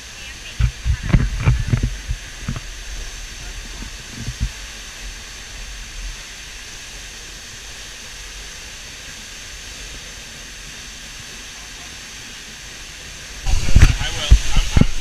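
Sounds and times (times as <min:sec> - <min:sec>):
waterfall hissing: 0:00.0 - 0:15.0
low thumps: 0:00.6 - 0:04.6.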